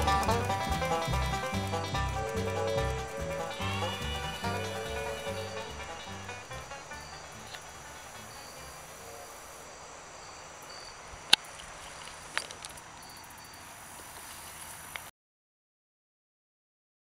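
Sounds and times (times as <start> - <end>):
outdoor background hiss: 0.0 - 15.1
faint high chirps: 2.0 - 11.0, 12.8 - 15.1.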